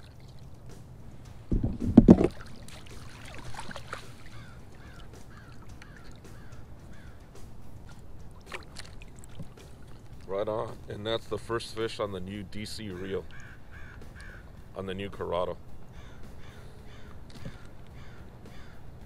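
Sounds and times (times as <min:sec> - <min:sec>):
water splash: 0:01.5 - 0:10.9
bird calling falling notes: 0:02.5 - 0:10.2, 0:12.5 - 0:19.0.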